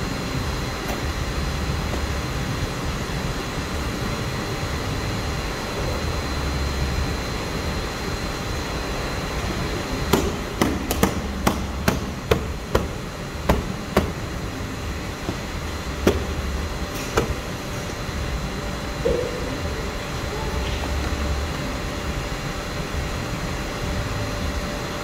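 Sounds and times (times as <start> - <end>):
steady workshop hum: 0.0 - 25.0
sharp knocks: 10.1 - 14.2, 15.3 - 16.4.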